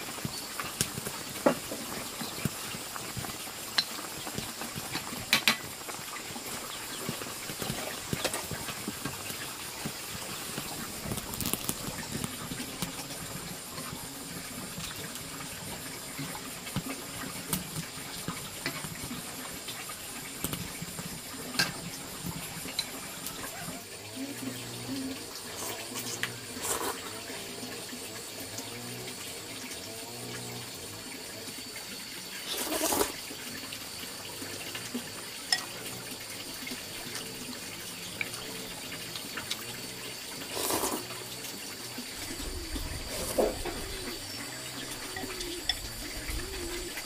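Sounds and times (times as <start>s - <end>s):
soup boiling in a wok: 0.0s - 47.0s.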